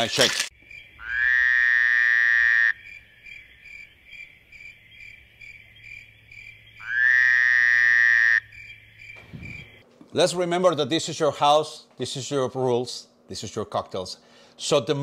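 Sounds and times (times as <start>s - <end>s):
crickets chirping: 0.0s - 9.8s.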